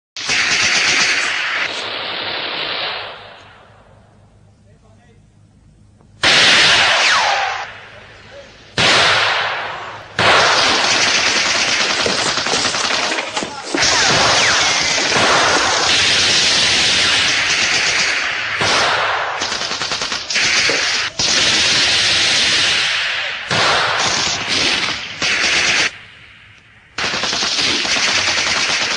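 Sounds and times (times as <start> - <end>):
machine-gun fire: 0.2 - 3.9, 6.2 - 8.0, 8.7 - 26.2, 27.0 - 28.9
loud ringing bangs: 6.2 - 19.5.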